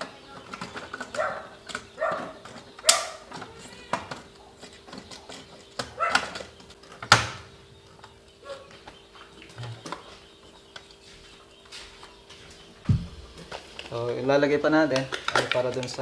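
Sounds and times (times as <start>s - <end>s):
clicks and knocks of wires and metal: 0.0s - 11.0s, 14.8s - 16.0s
faint animal calls: 7.6s - 13.4s.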